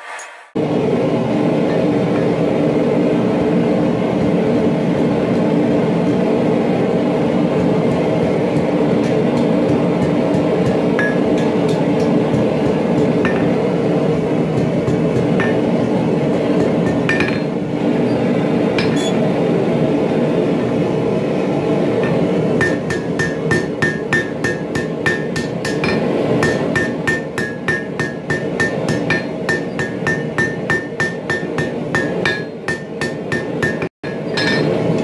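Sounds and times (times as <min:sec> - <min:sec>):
steady loud background noise: 0:00.5 - 0:35.0
hammer striking steel on anvil: 0:07.5 - 0:17.6, 0:18.8 - 0:19.2, 0:21.9 - 0:35.0.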